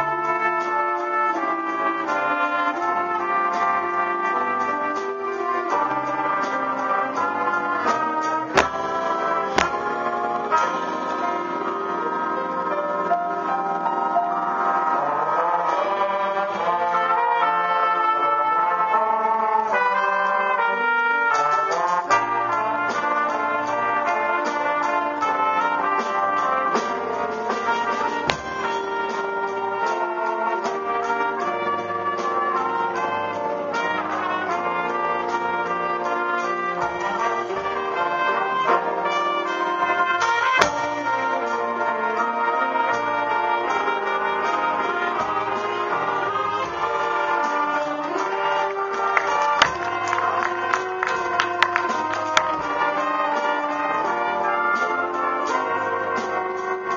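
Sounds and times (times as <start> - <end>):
jazz big band playing a ballad: 0.0 - 56.9
solo trumpet: 0.0 - 56.9
drum hits: 5.9 - 11.5, 26.3 - 29.9, 40.3 - 41.5, 45.2 - 53.7.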